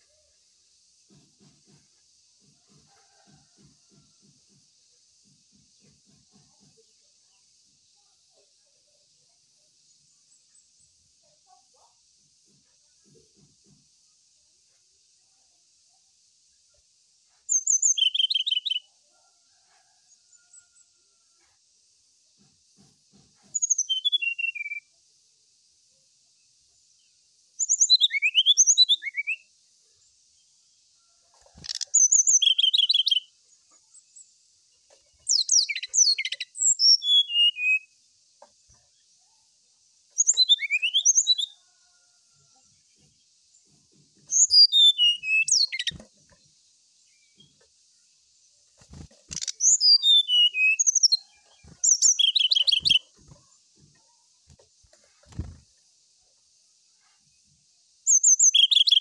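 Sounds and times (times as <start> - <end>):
bird singing whistled notes: 17.5 - 18.9, 23.5 - 24.9, 27.6 - 29.5, 31.7 - 33.3, 35.3 - 38.0, 40.2 - 41.6, 44.3 - 46.0, 49.3 - 53.1, 58.1 - 59.0.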